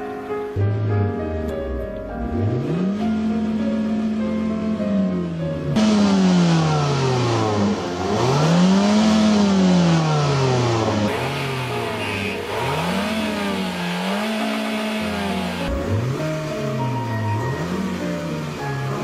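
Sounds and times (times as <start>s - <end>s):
car engine revving: 1.8s - 19.0s.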